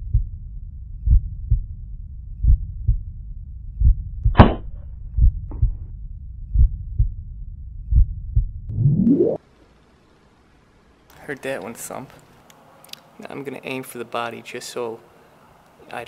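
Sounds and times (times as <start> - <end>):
heartbeat thumps: 0.0 - 9.4
rising whoosh: 8.7 - 9.4.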